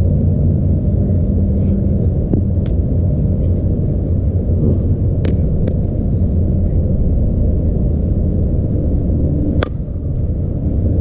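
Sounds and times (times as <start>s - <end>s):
steady low rumble: 0.0s - 11.0s
bat hitting a softball: 9.6s - 9.9s.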